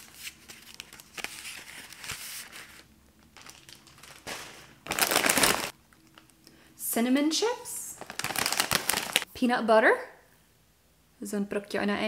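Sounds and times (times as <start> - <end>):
plastic wrappers crinkling: 0.0 - 6.4, 7.9 - 9.3.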